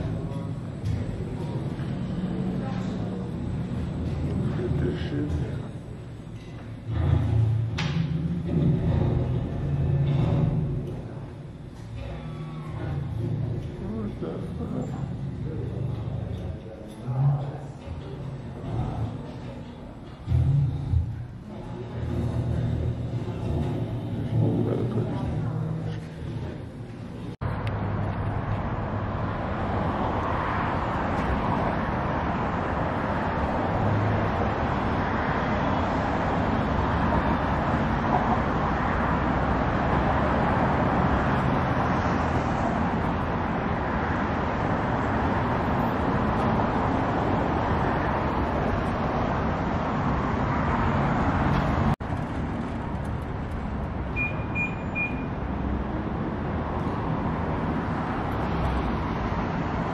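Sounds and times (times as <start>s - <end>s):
short high beeps: 54.2s - 55.3s.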